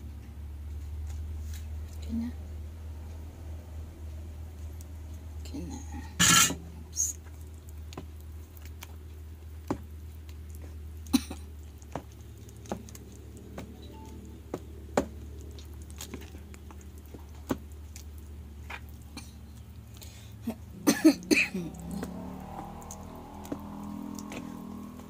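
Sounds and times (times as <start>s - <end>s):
low hum: 11.1s - 25.0s
spoon stirring batter in bowl: 14.4s - 20.7s, 21.7s - 25.0s.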